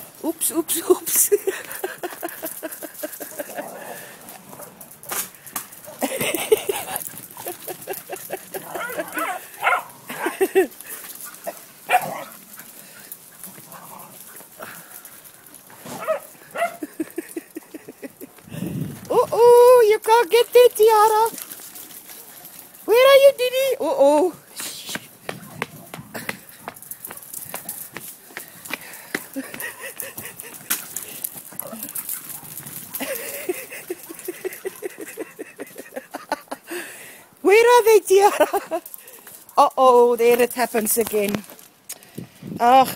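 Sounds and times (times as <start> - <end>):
dog barking: 8.7 - 9.9, 16.0 - 16.8.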